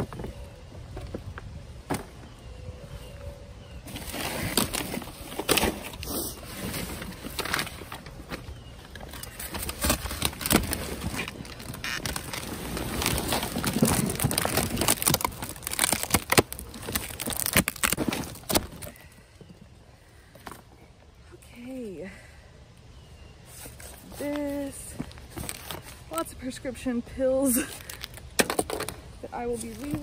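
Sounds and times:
cardboard boxes scraping and bumping: 3.9s - 16.0s
plastic bags crinkling: 3.9s - 19.1s, 23.6s - 26.2s, 27.6s - 28.9s.

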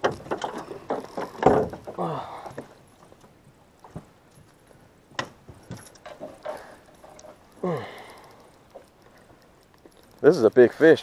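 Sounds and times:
man grunting: 2.0s - 2.5s.

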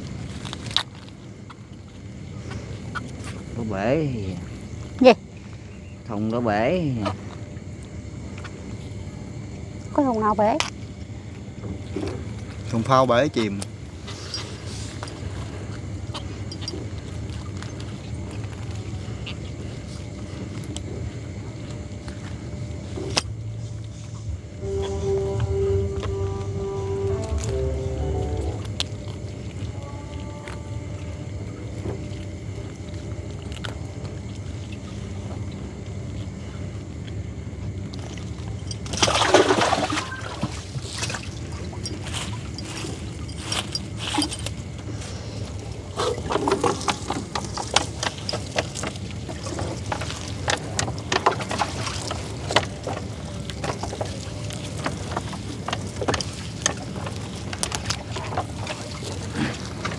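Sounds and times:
boat engine hum: 0.0s - 59.9s
water splashing and dripping: 38.1s - 42.1s.

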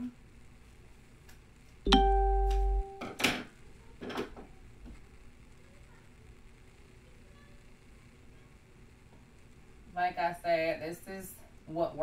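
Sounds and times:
steady tone with low hum: 0.0s - 3.9s.

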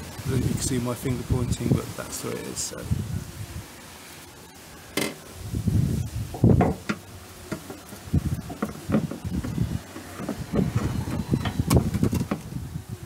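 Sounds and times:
light taps and rattles: 6.4s - 12.5s
metal clunks and knocks: 6.4s - 12.5s.

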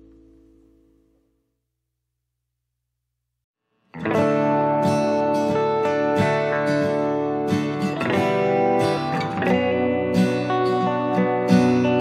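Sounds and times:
acoustic guitar playing: 0.0s - 1.3s, 3.8s - 12.0s.

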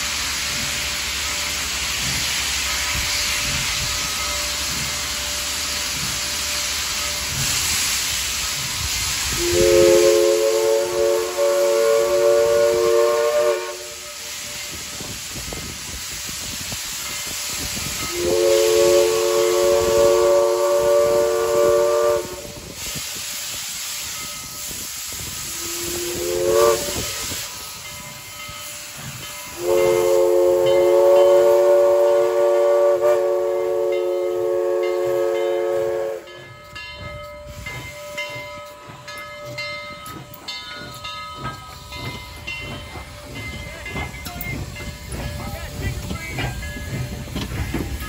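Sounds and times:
steam hissing: 0.0s - 48.0s
train clanking past: 0.0s - 48.0s
steam whistle blasts: 9.2s - 14.7s, 17.9s - 23.3s, 25.4s - 27.8s, 29.5s - 36.5s.

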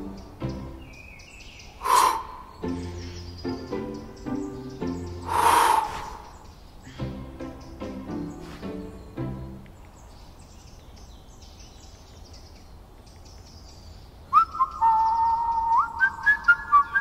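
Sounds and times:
person whistling a tune: 14.4s - 17.0s.

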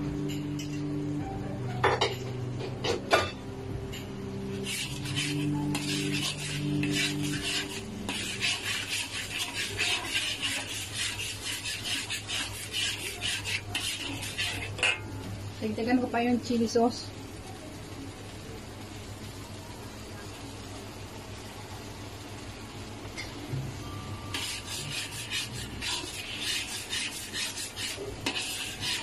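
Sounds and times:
fork scraping a metal wok: 4.5s - 15.1s, 24.3s - 29.0s.

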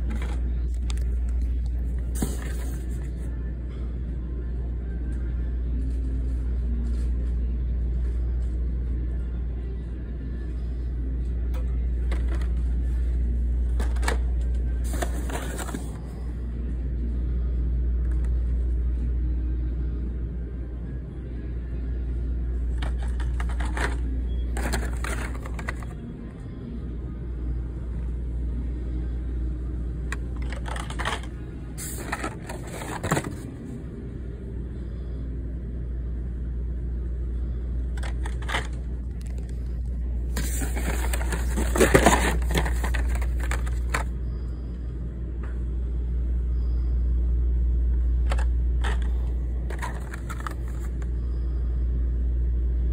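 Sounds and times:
rustling card and plastic: 13.7s - 16.1s, 22.7s - 26.0s, 30.1s - 33.4s, 37.9s - 44.1s, 48.2s - 51.1s.

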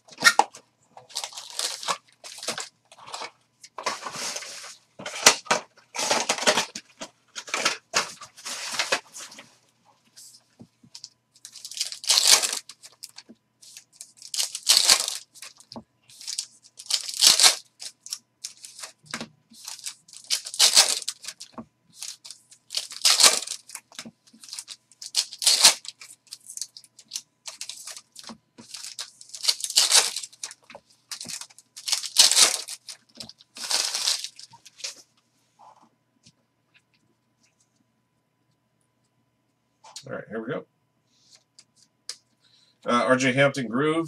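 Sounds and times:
foil wrapper tearing: 1.1s - 2.7s, 11.4s - 34.9s
foil crinkling: 1.1s - 6.8s, 11.0s - 35.0s.

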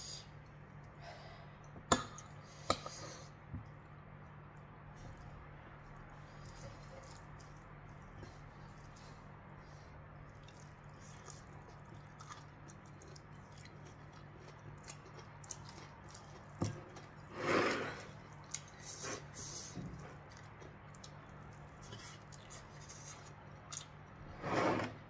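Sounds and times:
chewing: 5.0s - 9.3s, 10.2s - 17.3s, 17.9s - 24.1s.

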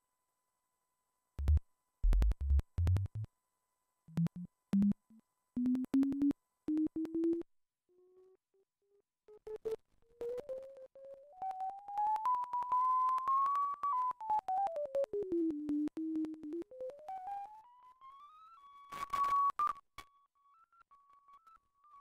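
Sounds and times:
clicky synthesizer tone blips: 1.4s - 3.3s, 4.1s - 7.5s.

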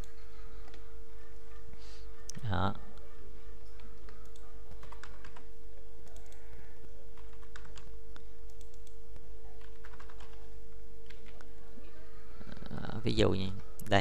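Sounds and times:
computer keyboard keys clicking: 3.7s - 9.0s, 9.6s - 10.4s, 11.0s - 11.5s.

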